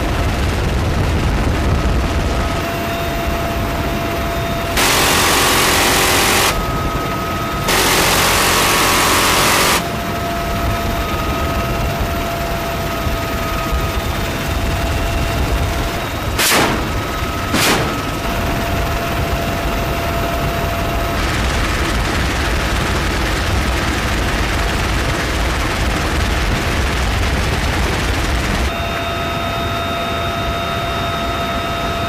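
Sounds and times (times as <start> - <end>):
helicopter turbines and rotor: 0.0 - 32.0
minigun firing bursts: 4.7 - 11.0, 16.0 - 18.8.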